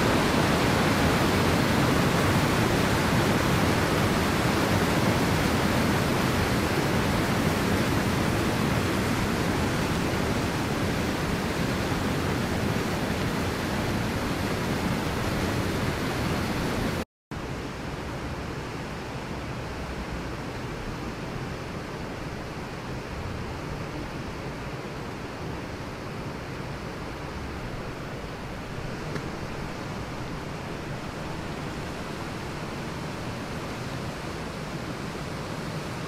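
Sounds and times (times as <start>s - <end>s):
waterfall rushing: 0.0s - 17.0s, 26.5s - 36.0s.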